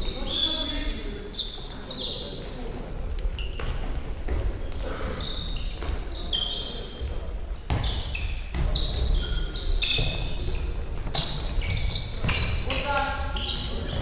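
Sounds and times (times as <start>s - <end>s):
shoes squeaking: 0.0s - 14.0s
ball bouncing on wooden floor: 11.0s - 12.7s.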